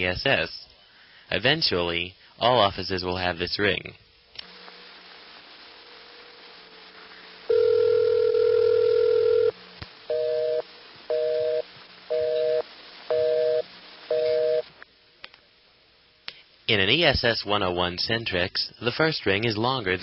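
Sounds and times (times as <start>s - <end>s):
phone ringback tone: 7.5s - 14.7s
two-tone busy signal beeps: 10.1s - 14.7s.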